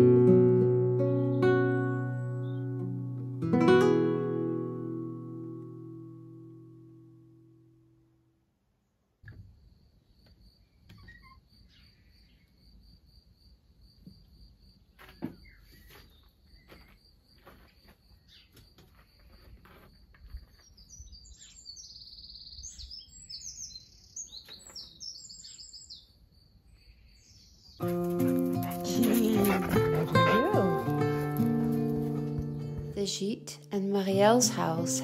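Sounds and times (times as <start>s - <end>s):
small birds chirping: 1.1s - 2.8s, 10.0s - 12.8s, 17.7s - 35.0s.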